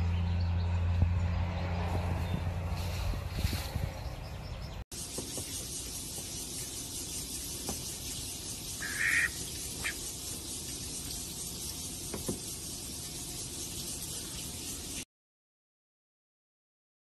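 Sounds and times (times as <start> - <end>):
steady hiss: 5.0 - 15.0
duck quacking: 8.8 - 10.0.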